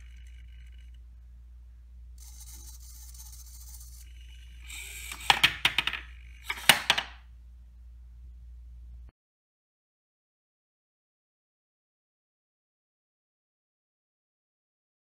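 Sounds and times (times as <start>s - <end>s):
faint high whir: 0.0s - 9.1s.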